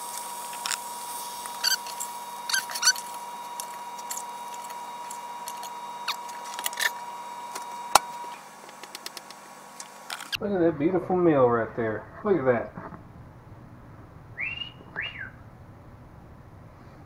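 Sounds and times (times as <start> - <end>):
faint high tone hum: 0.0 - 17.0
metal tongs clicking and squeaking: 1.6 - 7.0.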